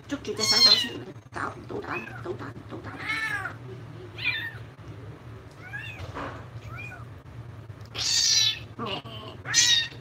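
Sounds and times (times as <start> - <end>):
kitten meowing: 7.9 - 10.0.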